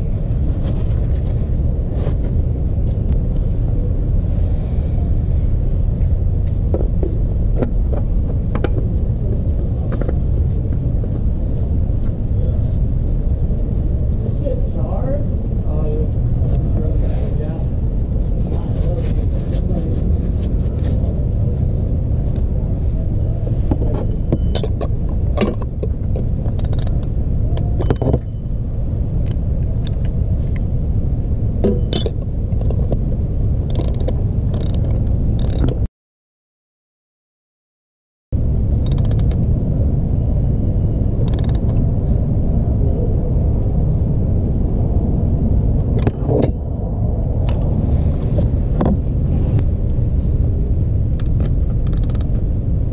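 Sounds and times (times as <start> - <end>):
steady low rumble: 0.0 - 35.9, 38.3 - 52.9
ratchet clicking: 26.6 - 27.1, 33.7 - 34.8, 35.4 - 35.6, 38.8 - 39.4, 41.2 - 41.7, 51.4 - 52.4.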